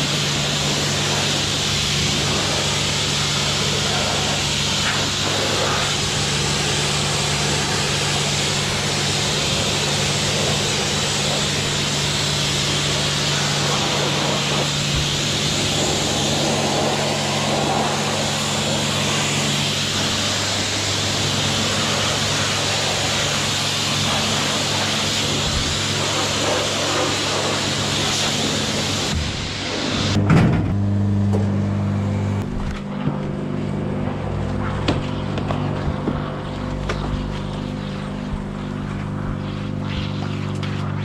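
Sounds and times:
hiss of water spray: 0.0 - 30.2
steady low hum: 0.0 - 41.0.

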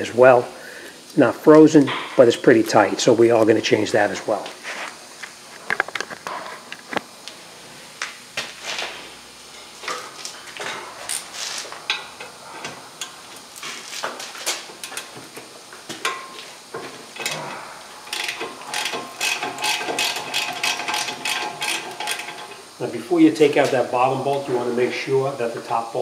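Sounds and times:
ratchet wrench clicking: 18.0 - 22.6.

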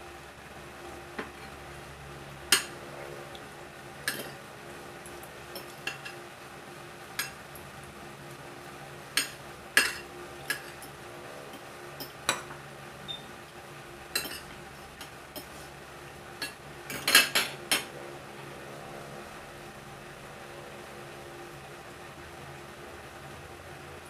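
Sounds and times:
cutlery clinking on a ceramic plate: 4.1 - 4.4, 14.2 - 14.5, 16.4 - 17.9.

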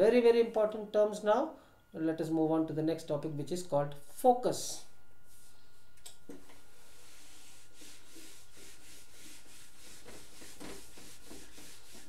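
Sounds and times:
duster scrubbing chalkboard: 6.5 - 12.0.

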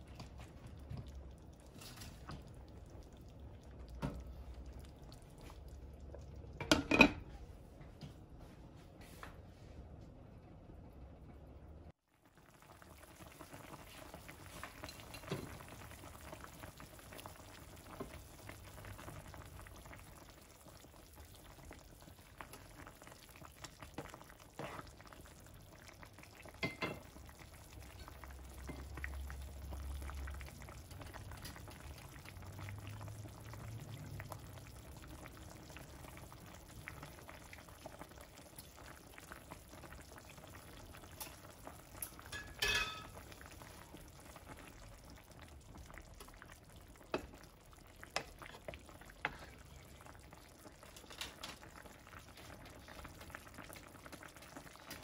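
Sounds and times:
soup bubbling in a pan: 0.0 - 7.4, 11.0 - 55.0
glass lid clink: 42.3 - 43.1.

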